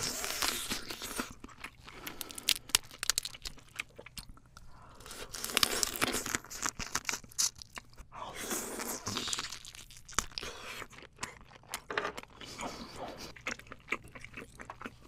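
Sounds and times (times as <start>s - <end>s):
wet chewing: 0.0s - 15.0s
crab shell cracking: 2.1s - 3.8s.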